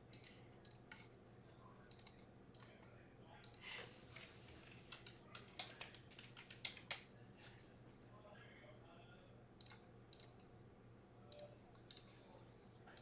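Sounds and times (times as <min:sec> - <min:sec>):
computer keyboard and mouse clicks: 0:00.0 - 0:01.2, 0:01.9 - 0:03.6, 0:04.8 - 0:07.1, 0:09.6 - 0:10.5, 0:11.3 - 0:12.1.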